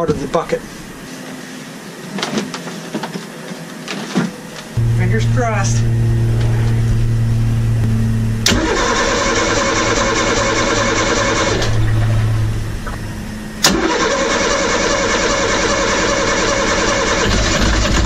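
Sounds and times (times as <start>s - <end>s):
steady hum: 0.0s - 2.1s, 4.4s - 17.2s
diesel engine starting and running: 4.5s - 18.0s.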